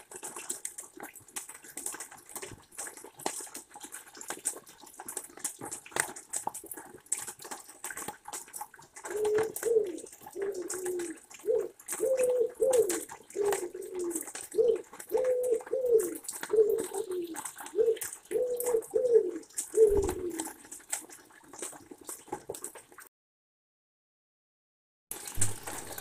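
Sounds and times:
rain dripping: 0:00.0 - 0:23.1, 0:25.1 - 0:26.0
pigeon cooing: 0:09.0 - 0:20.7.

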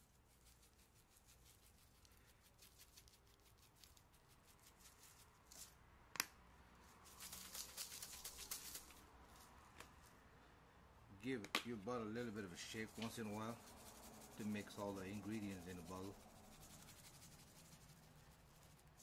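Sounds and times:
spice shaker rattling: 0:00.0 - 0:05.8, 0:07.0 - 0:09.0, 0:12.6 - 0:19.0.

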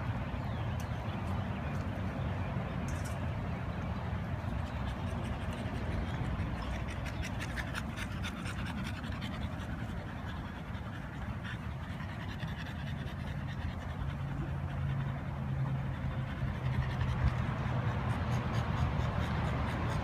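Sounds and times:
dog panting: 0:04.2 - 0:20.0.

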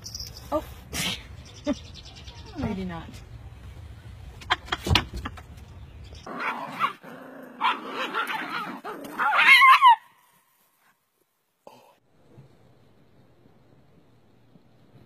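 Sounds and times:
dog barking and yelping: 0:06.3 - 0:10.1.

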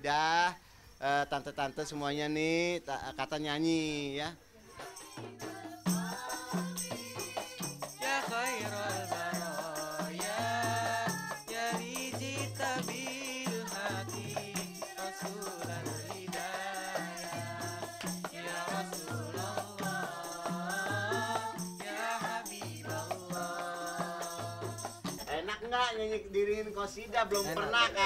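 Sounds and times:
tambourines jingling: 0:03.6 - 0:25.6, 0:26.9 - 0:28.0
people singing along: 0:04.6 - 0:25.6, 0:27.1 - 0:28.0
boy singing lead: 0:04.7 - 0:25.9
frame drums beating: 0:04.8 - 0:25.3.

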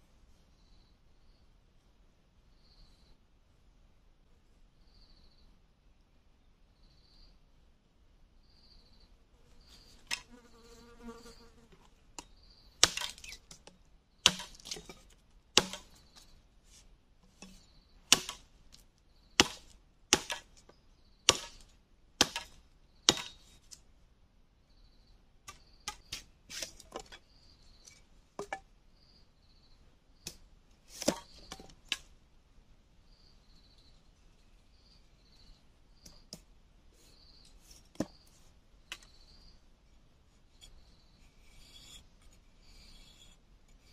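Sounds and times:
faint insect chirp: 0:00.0 - 0:43.9
machete chopping bamboo: 0:12.8 - 0:16.0, 0:17.4 - 0:18.5, 0:19.4 - 0:20.6, 0:21.3 - 0:23.4, 0:31.0 - 0:32.1.

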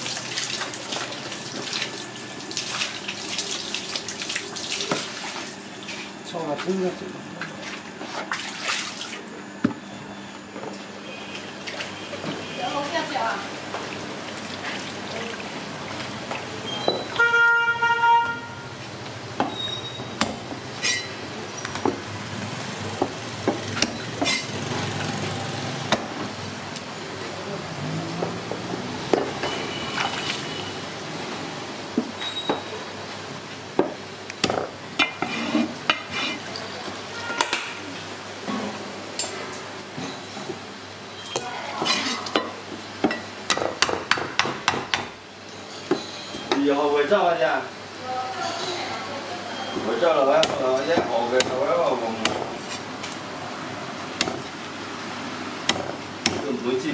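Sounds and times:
street traffic hum: 0:11.0 - 0:36.3, 0:47.8 - 0:56.9
cleaver striking wooden chopping block: 0:55.7 - 0:56.4.

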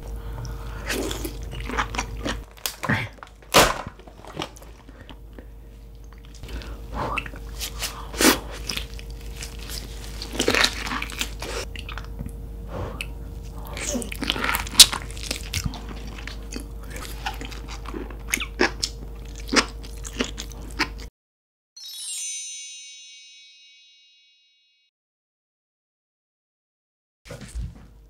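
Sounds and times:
chewing crunchy food: 0:00.1 - 0:21.1.

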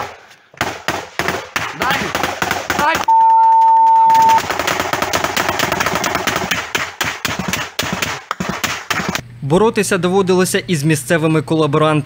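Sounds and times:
rapid automatic gunfire: 0:00.0 - 0:03.0, 0:04.2 - 0:09.2
censor bleep: 0:03.1 - 0:04.4.

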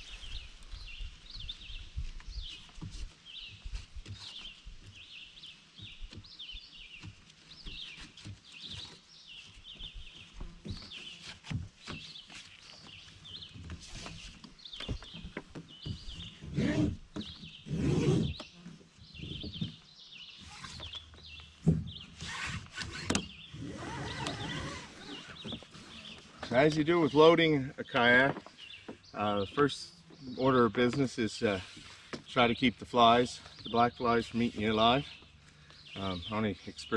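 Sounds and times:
songbirds chirping: 0:00.0 - 0:36.9
strap clicking and rustling: 0:22.2 - 0:26.8.

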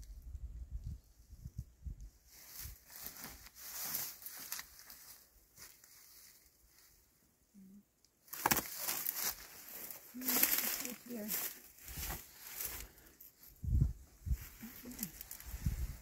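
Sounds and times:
dry fronds rustling: 0:02.1 - 0:07.2, 0:08.2 - 0:16.0
footsteps crunching through bracken: 0:08.3 - 0:13.1.

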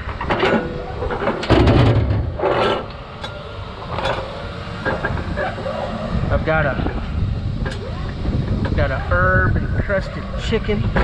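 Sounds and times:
faint steady hum: 0:00.0 - 0:11.0
heavy clatter: 0:00.3 - 0:02.9.

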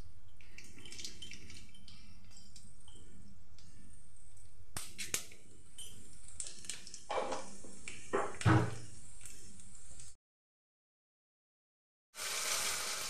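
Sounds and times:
spices sizzling in hot oil: 0:12.2 - 0:13.0.

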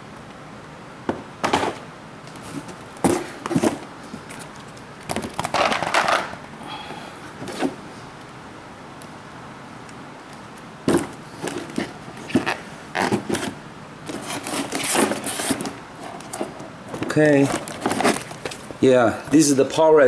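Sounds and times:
cardboard scraping and knocking: 0:02.4 - 0:03.9, 0:10.9 - 0:18.4.

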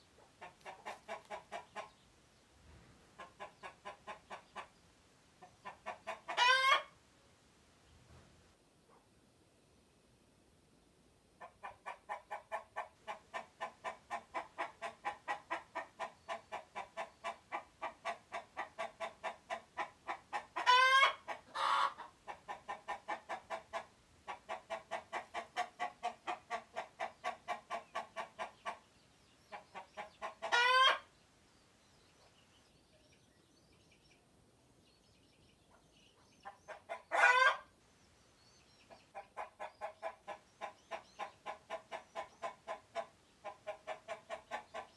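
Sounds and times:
chicken clucking rapidly: 0:00.2 - 0:02.0, 0:03.1 - 0:04.8, 0:05.4 - 0:07.0, 0:11.4 - 0:31.1, 0:35.5 - 0:37.7, 0:38.7 - 0:44.9
chicken squawks: 0:05.6 - 0:07.0, 0:11.5 - 0:28.8, 0:29.5 - 0:31.1, 0:36.4 - 0:37.7.

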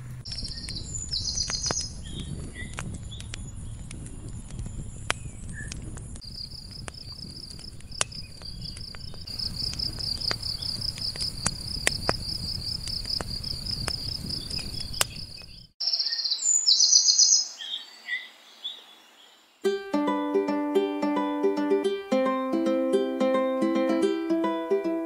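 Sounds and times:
campfire crackling: 0:00.0 - 0:15.8
birds chirping: 0:00.0 - 0:19.7
insect trilling: 0:09.3 - 0:16.1.

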